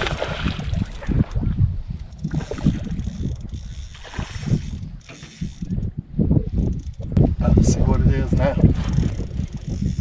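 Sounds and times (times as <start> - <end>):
wind and water knocking boat: 0.0 - 10.0
fishing reel gears whirring: 0.1 - 7.2, 8.2 - 10.0.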